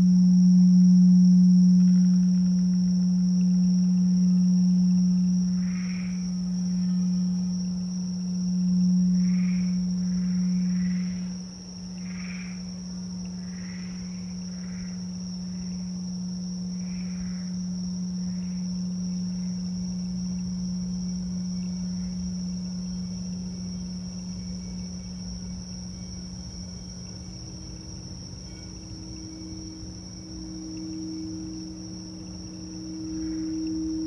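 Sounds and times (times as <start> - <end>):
high drone of insects: 0.0 - 34.0
singing bowl ringing: 0.0 - 34.0
frog calls: 4.9 - 7.4, 8.1 - 15.8, 16.6 - 19.7.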